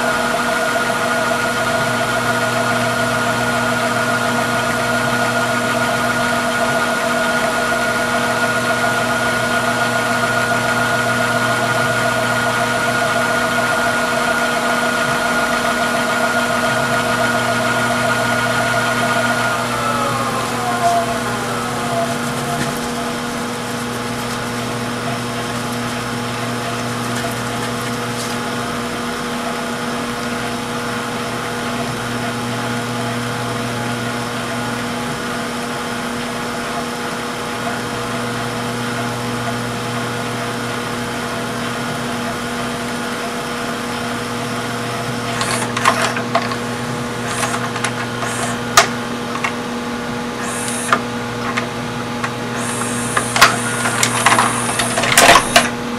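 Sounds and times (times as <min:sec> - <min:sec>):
tape transport motor hum: 0:00.0 - 0:55.9
mechanism clicks and clunks: 0:45.3 - 0:46.6, 0:53.1 - 0:55.8.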